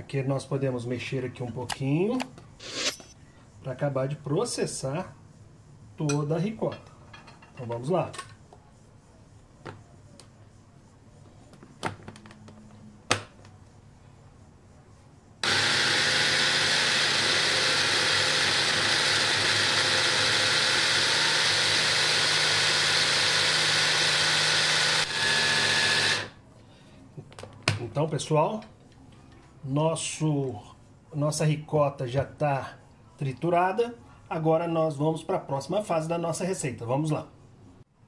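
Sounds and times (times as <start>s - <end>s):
food processor motor running: 15.4s - 26.4s.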